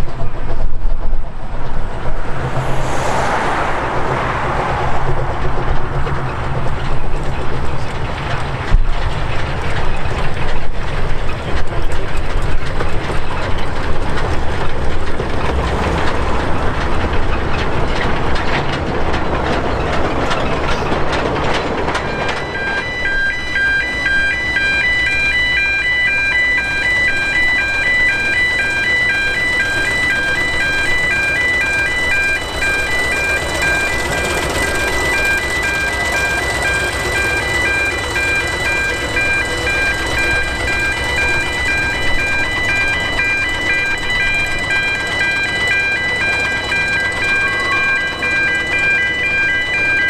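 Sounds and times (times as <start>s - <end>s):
steam locomotives running past: 0.0s - 50.0s
wheels rumbling over rails: 0.0s - 50.0s
electronic chime tune: 22.1s - 50.0s.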